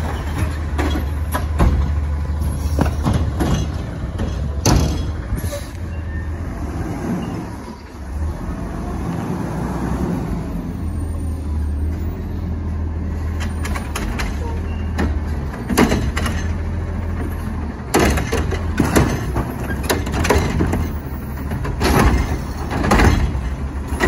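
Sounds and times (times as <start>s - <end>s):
sharp metallic knocks: 2.8s - 5.3s.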